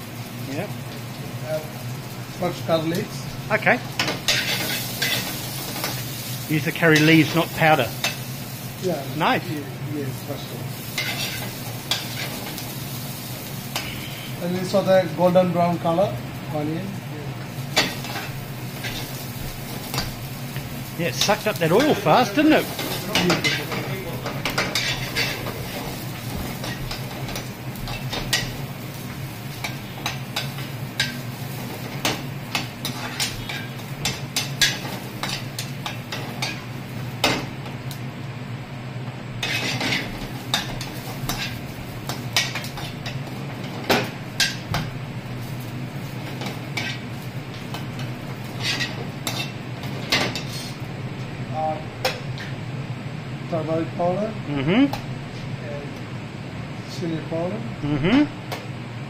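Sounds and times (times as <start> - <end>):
onions sizzling in oil: 0.0 - 53.3
metal ladle scraping frying pan: 39.4 - 40.1, 48.5 - 49.5.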